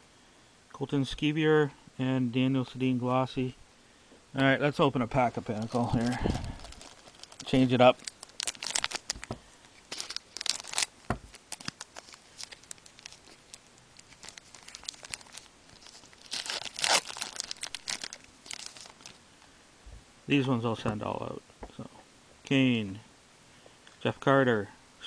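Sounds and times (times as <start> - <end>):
foil wrapper tearing and crinkling: 5.3 - 19.2.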